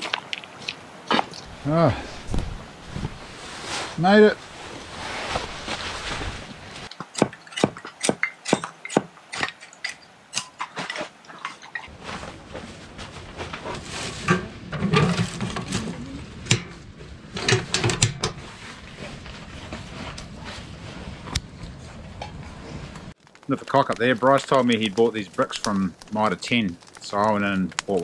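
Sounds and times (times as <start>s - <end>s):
clicks and clattering knocks: 17.4s - 18.4s
metal stove door: 17.4s - 18.4s.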